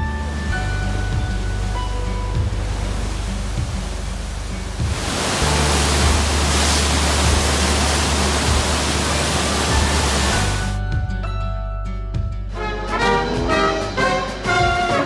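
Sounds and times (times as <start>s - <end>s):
white water rushing: 0.0s - 10.8s.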